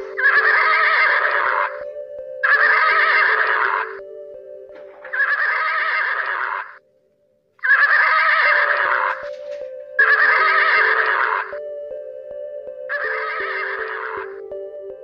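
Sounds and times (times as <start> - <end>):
horse neighing: 0.2 - 1.8, 5.0 - 6.8, 7.6 - 9.2, 10.0 - 11.6, 12.9 - 14.3.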